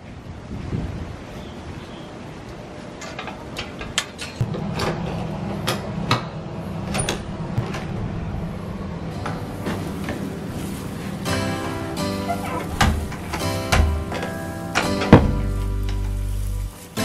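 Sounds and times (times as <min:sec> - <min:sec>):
steady low hum: 0:04.4 - 0:17.0
door swinging open: 0:12.1 - 0:15.6.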